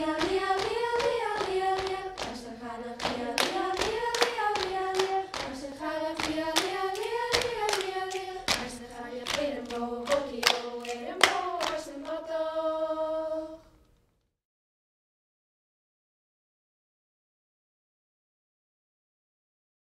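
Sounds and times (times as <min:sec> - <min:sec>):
hand claps and slaps: 0:00.0 - 0:12.2
group of young voices singing: 0:00.0 - 0:13.7.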